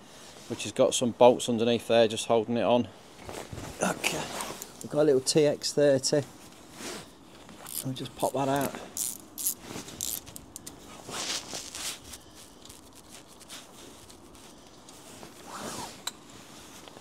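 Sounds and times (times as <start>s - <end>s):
hand ratchet clicking: 7.7s - 7.9s, 9.0s - 10.7s.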